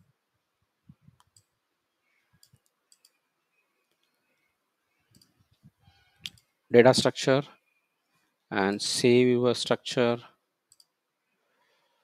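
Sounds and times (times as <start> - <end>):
computer mouse clicks: 1.2 - 1.6, 2.4 - 3.2, 5.1 - 6.6, 10.7 - 11.0.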